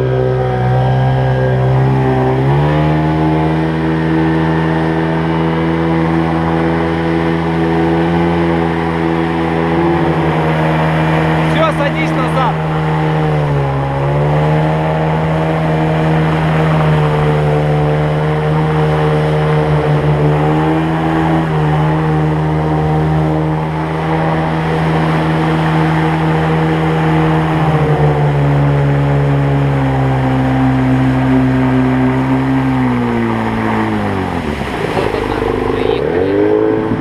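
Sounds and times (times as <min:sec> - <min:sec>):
outboard boat engine running: 0:00.0 - 0:37.0.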